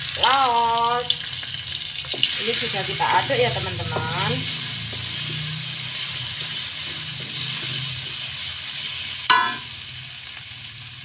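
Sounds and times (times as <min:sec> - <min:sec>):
spice paste sizzling in a wok: 0:00.0 - 0:11.0
wooden spatula stirring: 0:02.0 - 0:08.7
sharp ringing knock: 0:09.3 - 0:09.7.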